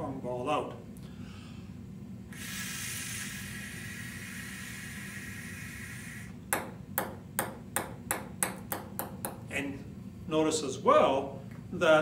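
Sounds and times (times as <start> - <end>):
breath blown through plastic tubing: 2.3 - 6.4
ping-pong ball bouncing: 6.5 - 9.4.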